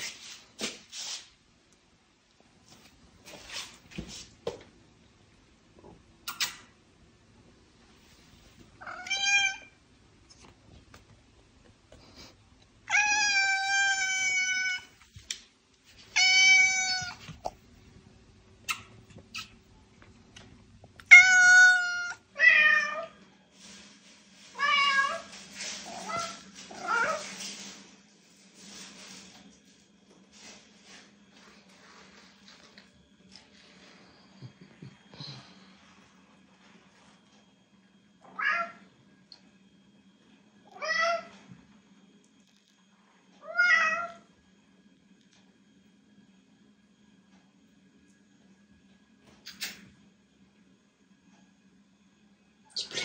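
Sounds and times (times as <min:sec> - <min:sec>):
cat meowing: 0:08.8 - 0:09.7, 0:12.9 - 0:14.9, 0:16.2 - 0:17.2, 0:21.1 - 0:23.1.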